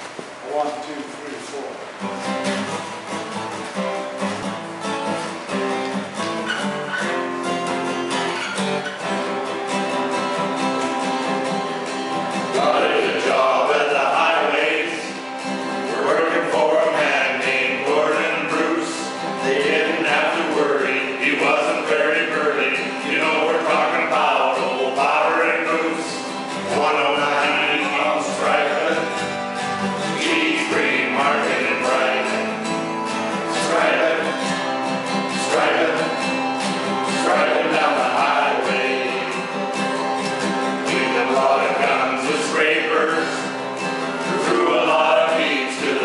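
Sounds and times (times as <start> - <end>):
acoustic guitars strumming: 0.0 - 46.0
men singing together: 12.4 - 29.4, 30.0 - 46.0.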